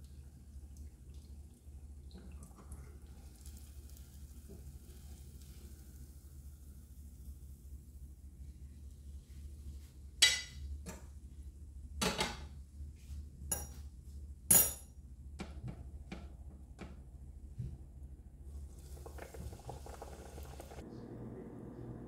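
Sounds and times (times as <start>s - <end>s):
frying oil sizzling: 3.0s - 8.4s, 18.5s - 20.8s.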